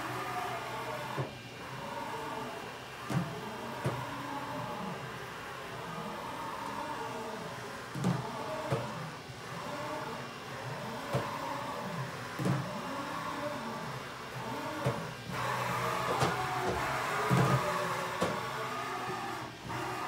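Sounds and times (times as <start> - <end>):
servo motors whining: 8.2 - 20.0.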